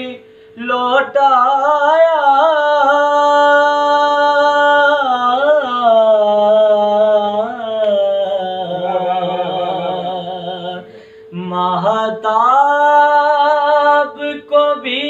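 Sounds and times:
man singing unaccompanied: 0.0 - 15.0
faint steady tone: 8.2 - 15.0.

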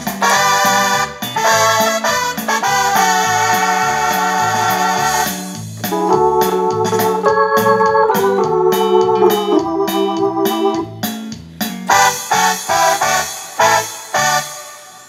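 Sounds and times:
bouncing bass line: 0.0 - 13.8
drum beat: 0.0 - 13.8
organ-style keyboard chords: 0.0 - 15.0.

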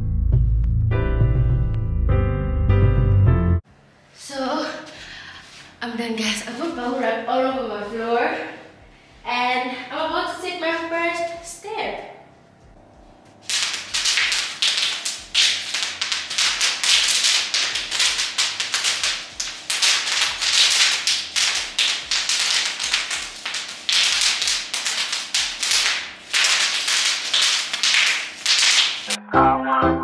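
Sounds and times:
bubble wrap popping underfoot: 13.4 - 29.2.

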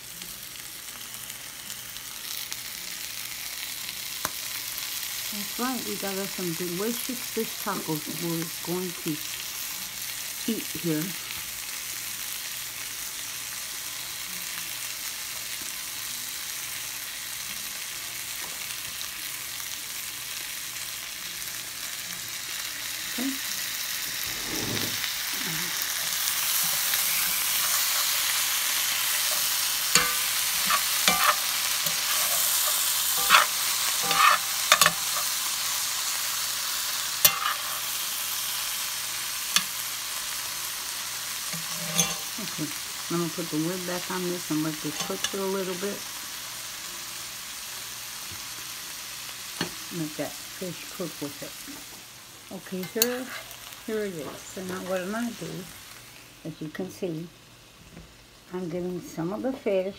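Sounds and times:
food sizzling in a skillet: 0.0 - 59.9
metal spoon scraping pan: 24.2 - 25.1, 26.2 - 35.4, 37.2 - 38.0, 41.5 - 42.6, 44.9 - 45.4, 52.8 - 53.7.

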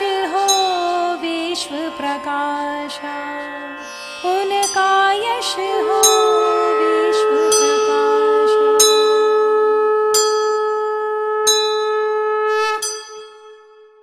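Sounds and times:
conch shell blown: 0.0 - 14.0
bell ringing: 5.7 - 9.3, 12.8 - 13.6.

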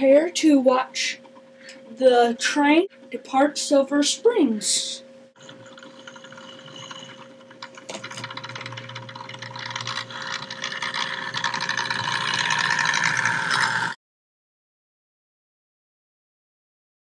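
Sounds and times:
model train motor whirring: 5.4 - 14.0
wheels rattling on rails: 5.4 - 14.0.

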